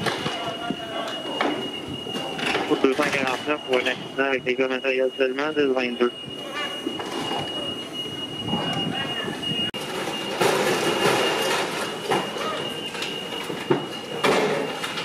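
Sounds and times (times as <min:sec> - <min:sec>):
high-pitched whine: 0:00.0 - 0:15.0
voices in background: 0:00.1 - 0:09.7.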